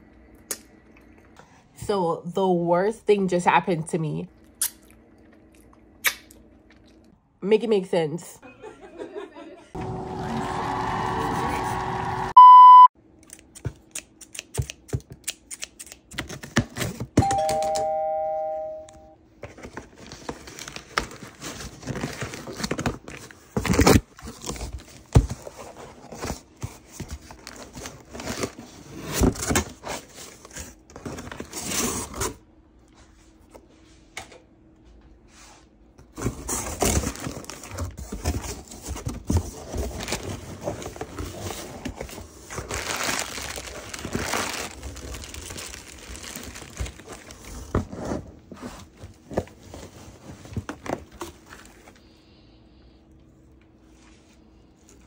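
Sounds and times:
short loud beep: 12.4 - 12.9
doorbell chiming two notes: 17.2 - 19.2
plastic air-pillow packing crinkling: 39.9 - 48.0
packing tape ripping: 42.6 - 47.4.

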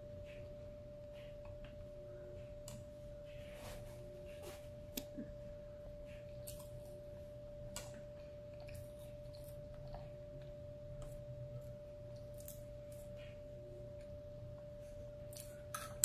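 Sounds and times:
chewing: 6.1 - 7.0, 7.7 - 13.3.

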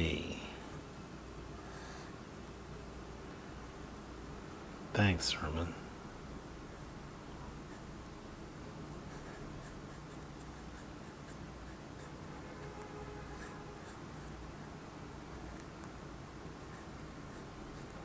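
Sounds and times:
low steady background hum: 0.0 - 18.0
pen nib scratching on card: 9.1 - 12.2, 16.7 - 18.0.

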